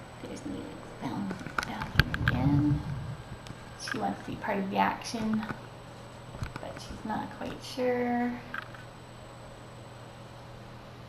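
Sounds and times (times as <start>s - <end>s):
low hum: 0.0s - 4.5s.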